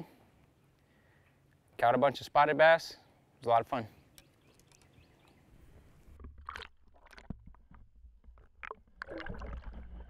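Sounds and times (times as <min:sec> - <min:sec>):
sharp clicks underwater: 0:04.1 - 0:05.0, 0:06.0 - 0:10.0
water sloshing gurgles: 0:05.6 - 0:10.0
underwater low rumble: 0:06.0 - 0:10.0.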